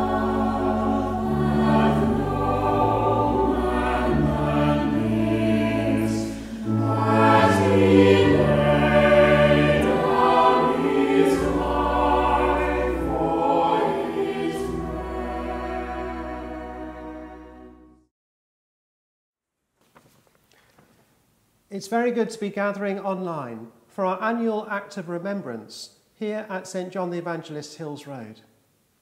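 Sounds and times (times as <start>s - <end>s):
sustained low notes: 0.0s - 17.9s
church choir singing: 0.0s - 18.0s.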